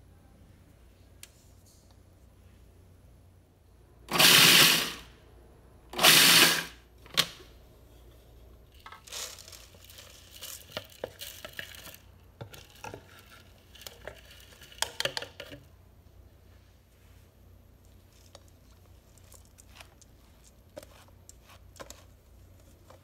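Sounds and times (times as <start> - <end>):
food processor chopping nuts: 4.1 - 5.1, 5.9 - 6.8
food processor click: 6.0 - 7.4.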